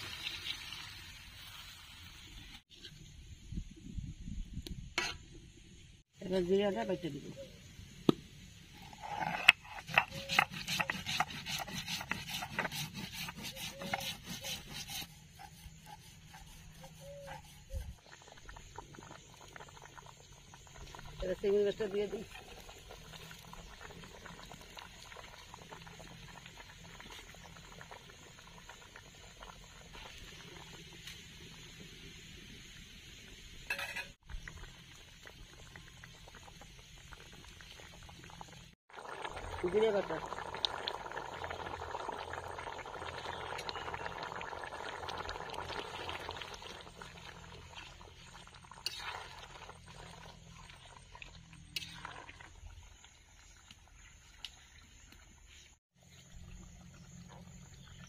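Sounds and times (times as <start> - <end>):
spatula scraping wok: 8.7 - 18.2, 33.7 - 34.2, 47.7 - 50.1
stone roller grinding seeds: 8.8 - 18.1
curry boiling with bubbles popping: 15.3 - 58.0.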